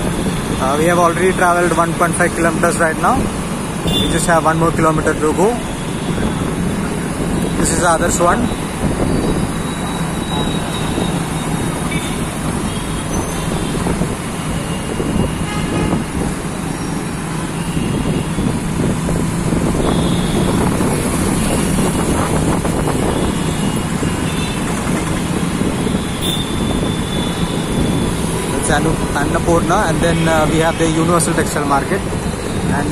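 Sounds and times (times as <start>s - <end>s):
city traffic noise: 0.0s - 32.9s
vehicle horn toots: 3.8s - 4.2s, 15.4s - 16.0s, 26.1s - 27.3s
auto-rickshaw engine running: 16.4s - 30.3s.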